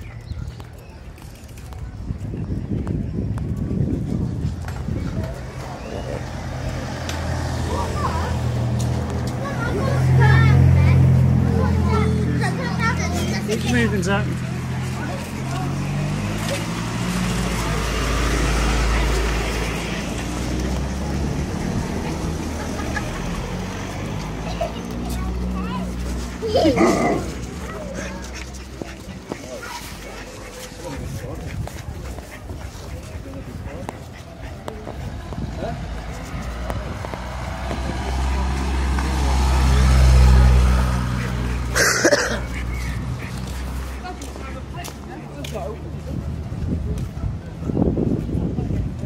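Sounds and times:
street traffic noise: 0.0s - 49.0s
vehicle engine passing by: 3.7s - 49.0s.

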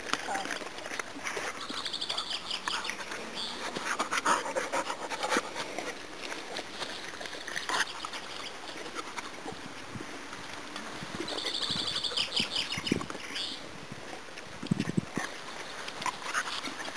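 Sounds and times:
dogs licking plastic bowl: 0.0s - 10.6s.

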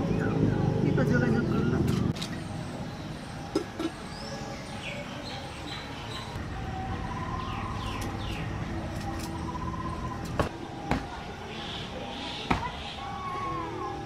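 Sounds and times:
birds chirping: 0.0s - 13.9s.

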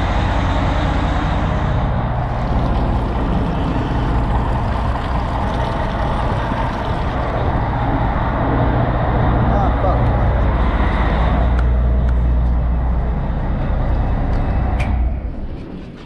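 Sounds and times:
marine diesel engine running: 0.0s - 16.0s
water splashing into sea: 2.2s - 8.0s.

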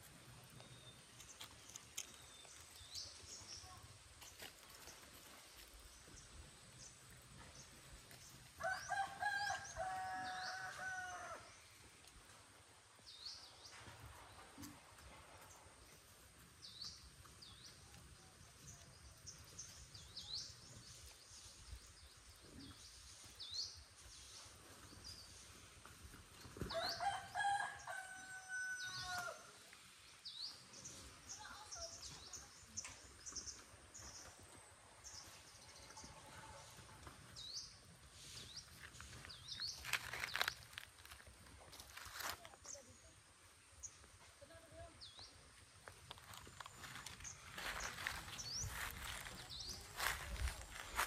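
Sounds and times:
rooster crowing: 8.6s - 11.5s, 26.7s - 29.4s.

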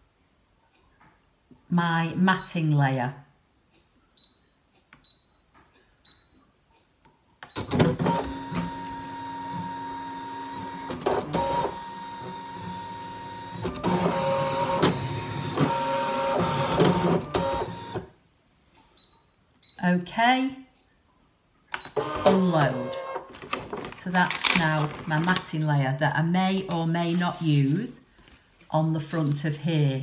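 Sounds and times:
cutting machine motors whirring: 8.0s - 18.0s, 22.0s - 23.2s.

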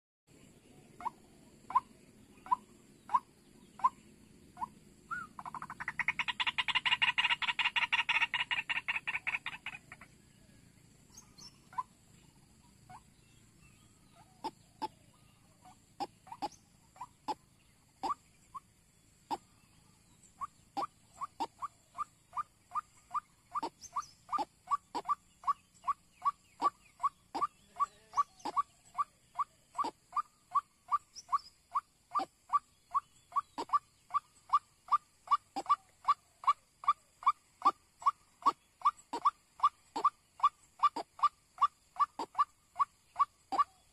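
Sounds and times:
waterhen calling: 4.6s - 10.1s, 20.4s - 43.9s.

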